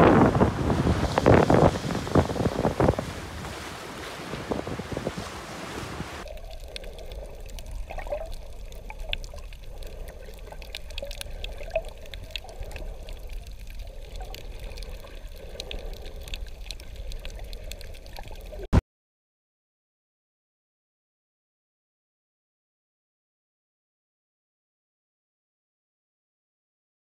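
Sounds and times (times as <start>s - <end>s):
muffled underwater sloshing: 0.0s - 18.7s
small clicks and crackles: 6.2s - 18.7s.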